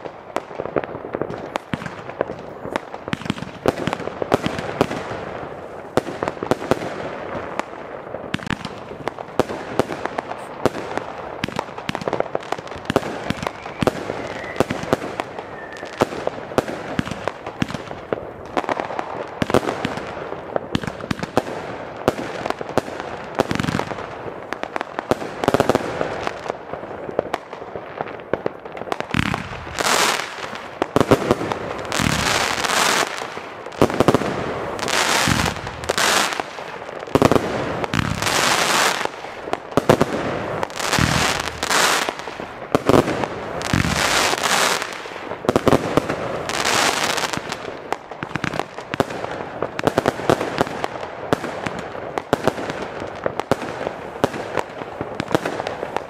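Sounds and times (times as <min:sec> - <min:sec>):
fireworks bangs and crackles: 0:00.0 - 0:56.0
hissing crackle bursts: 0:07.0 - 0:22.0, 0:28.2 - 0:45.5.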